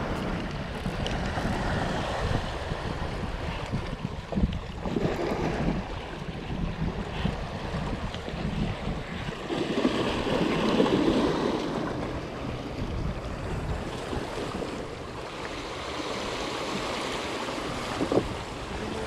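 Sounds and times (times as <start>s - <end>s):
wind on microphone: 0.0s - 19.0s
waves splashing on rocks: 9.3s - 12.3s.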